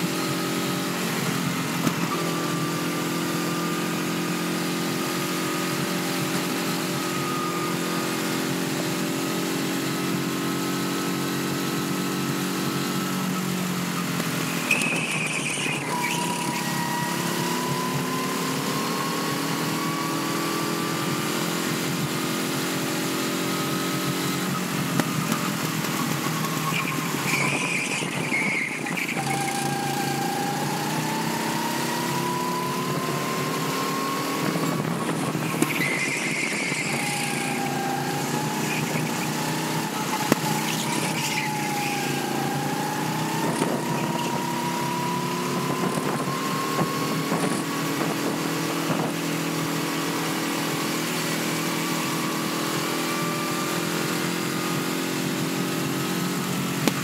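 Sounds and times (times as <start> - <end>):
go-kart engine running hard: 0.0 - 57.0.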